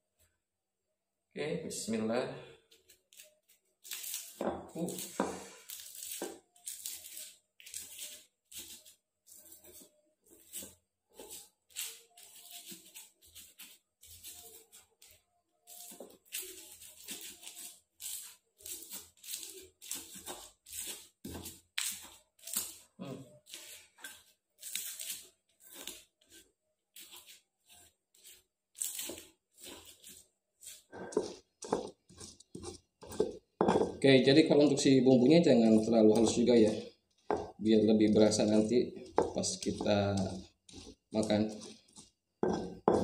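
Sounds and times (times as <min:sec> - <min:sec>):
stone pestle grinding in mortar: 0:15.7 - 0:22.8, 0:23.4 - 0:43.0.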